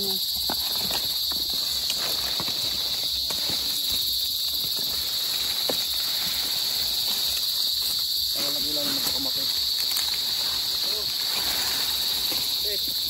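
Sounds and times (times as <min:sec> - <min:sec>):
dry palm fronds rustling: 0:00.0 - 0:13.0
high insect drone: 0:00.0 - 0:13.0.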